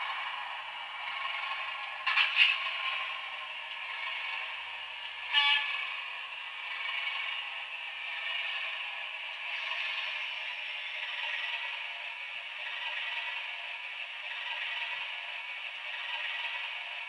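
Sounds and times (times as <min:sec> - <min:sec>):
diesel engine through small speaker: 0:00.0 - 0:17.0
horn blast: 0:05.2 - 0:05.8.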